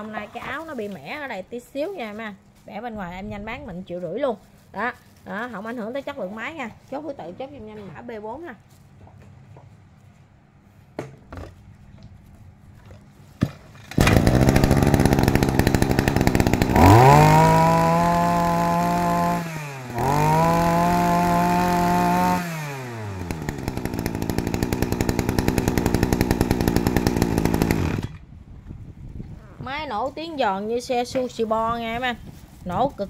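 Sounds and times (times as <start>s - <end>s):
brush cutter engine revving: 13.9s - 28.3s.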